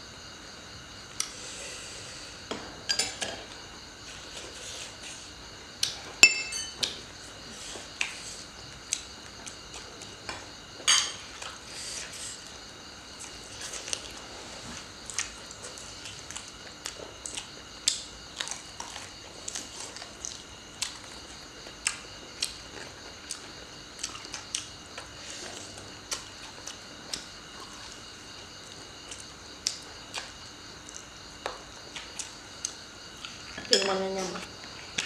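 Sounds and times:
chewing and crunching: 0:12.4 - 0:33.7.

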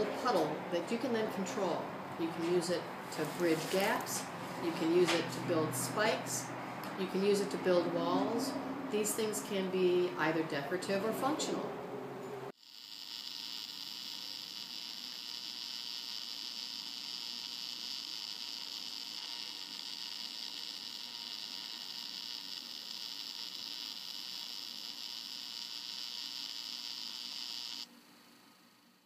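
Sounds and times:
welding arc sizzling: 0:02.6 - 0:06.5, 0:12.5 - 0:27.9.

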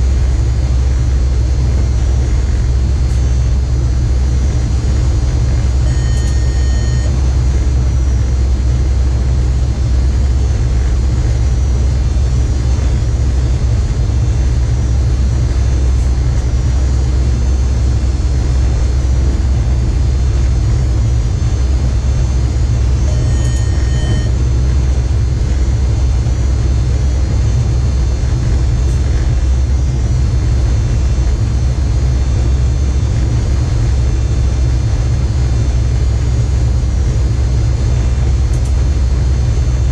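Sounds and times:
electric train rumbling: 0:00.0 - 0:39.9
short electronic beep: 0:05.8 - 0:07.2, 0:23.0 - 0:24.4.

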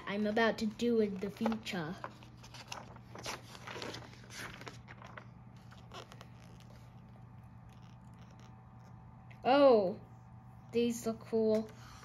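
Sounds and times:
book pages rustling: 0:00.0 - 0:09.1.

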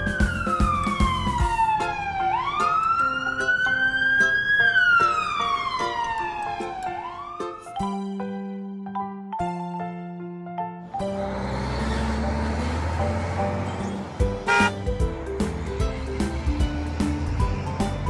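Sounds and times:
siren wailing: 0:00.0 - 0:07.7
light background music: 0:00.0 - 0:18.0.

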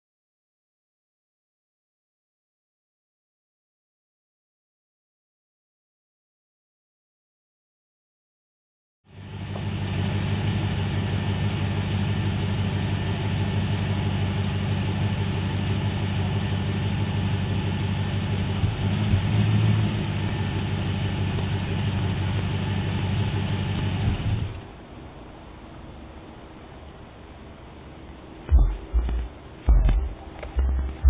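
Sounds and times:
car engine idling: 0:09.1 - 0:25.0, 0:27.6 - 0:31.0.

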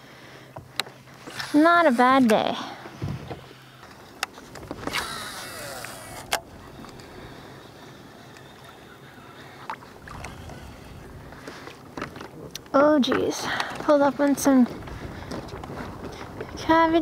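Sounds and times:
small waves lapping against hull: 0:00.5 - 0:12.7.

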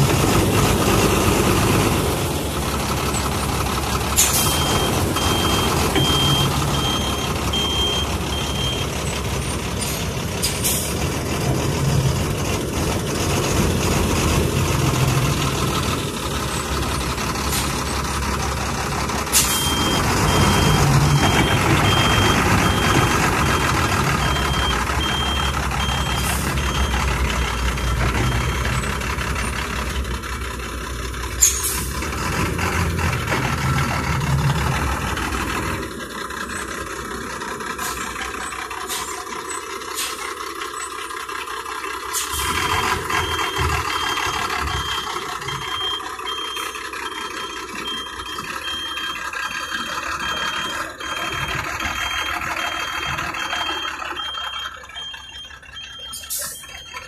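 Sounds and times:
bus engine running: 0:00.0 - 0:57.0
reverse warning beeper: 0:04.3 - 0:09.6, 0:19.4 - 0:29.5, 0:42.3 - 0:57.0.

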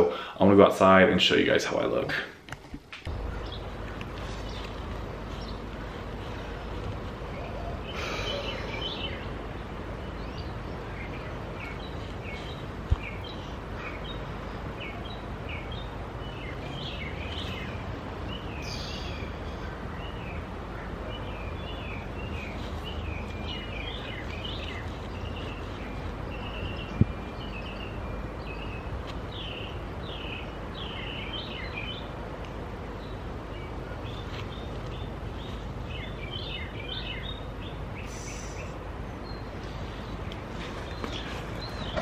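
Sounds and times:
songbirds chirping: 0:00.0 - 0:02.4, 0:03.0 - 0:42.0
low background rumble: 0:03.1 - 0:14.6.

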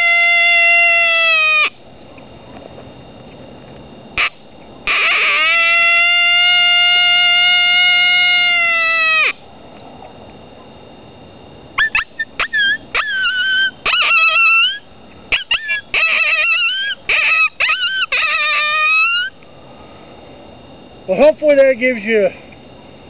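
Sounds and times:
coyote howler call: 0:00.0 - 0:02.6, 0:04.2 - 0:10.8, 0:11.7 - 0:19.4.

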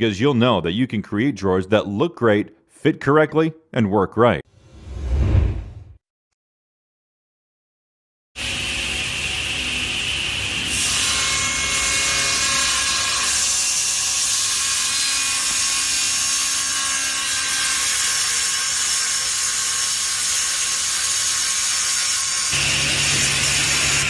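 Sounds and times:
table saw cutting wood: 0:08.4 - 0:24.0.

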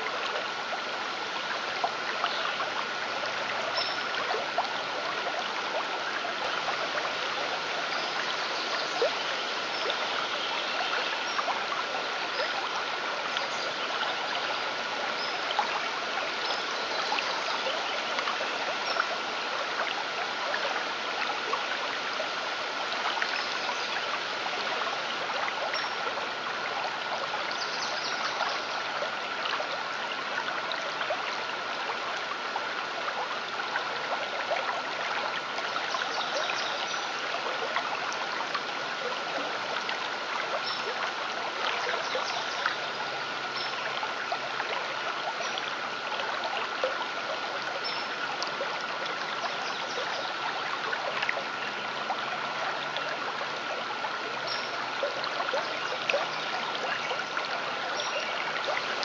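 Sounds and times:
trickling stream: 0:00.0 - 0:59.0.

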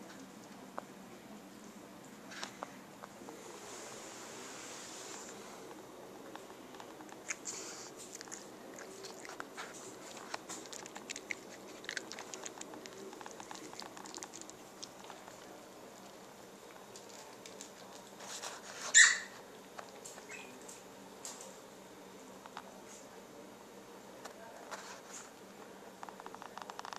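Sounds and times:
cat crunching dry kibble: 0:06.2 - 0:18.6.

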